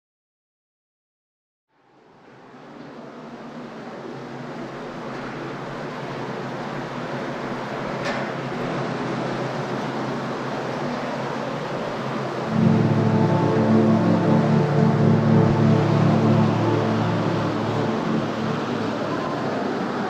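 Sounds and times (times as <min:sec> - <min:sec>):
low steady hum: 0:12.2 - 0:20.0.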